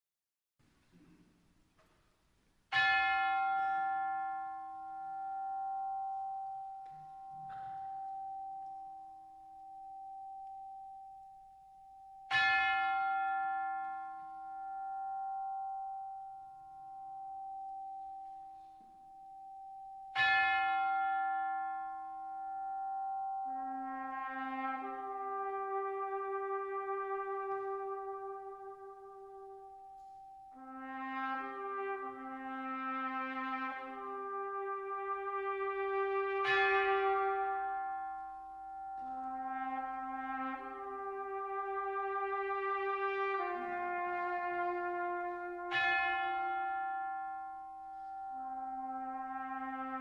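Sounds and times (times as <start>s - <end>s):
tubular bell tolling: 2.7s - 26.1s
brass band holding a chord: 23.6s - 29.7s, 30.6s - 38.1s, 39.0s - 47.3s, 48.5s - 50.0s.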